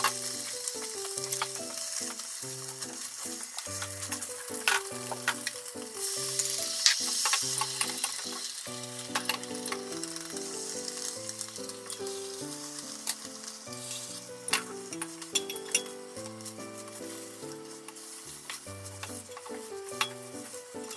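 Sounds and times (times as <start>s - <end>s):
egg sizzling in a pan: 0.0s - 20.9s
soft background music: 0.0s - 20.9s
chopsticks clicking on pan: 14.5s - 16.6s, 17.9s - 20.2s.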